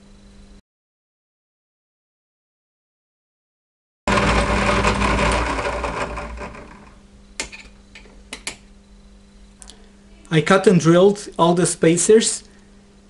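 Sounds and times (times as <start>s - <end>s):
milling machine running: 4.1s - 7.0s.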